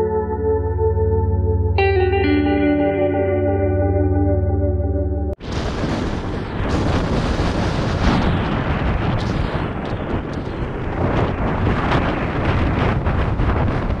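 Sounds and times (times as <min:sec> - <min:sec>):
wind buffeting microphone: 0:05.4 - 0:14.0.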